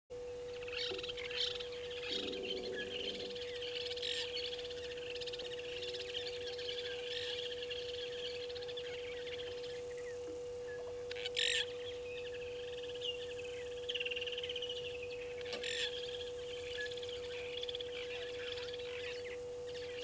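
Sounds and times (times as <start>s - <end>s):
steady hum: 0.1s - 20.0s
birds chirping and twittering: 0.2s - 20.0s.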